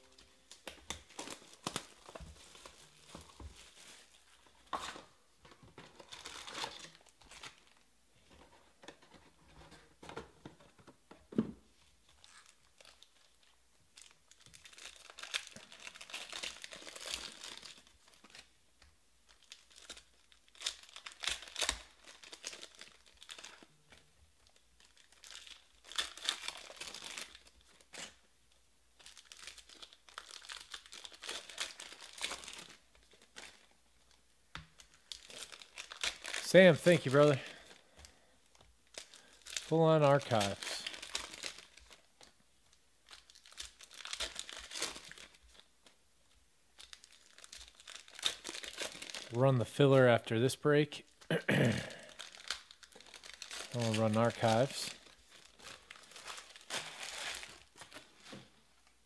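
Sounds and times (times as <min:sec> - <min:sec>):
foil wrappers tearing and crinkling: 0:00.1 - 0:04.3, 0:14.0 - 0:18.5, 0:19.3 - 0:28.2, 0:29.0 - 0:33.7, 0:34.8 - 0:38.2, 0:38.8 - 0:42.3, 0:43.0 - 0:45.7, 0:46.8 - 0:49.4, 0:51.8 - 0:58.6.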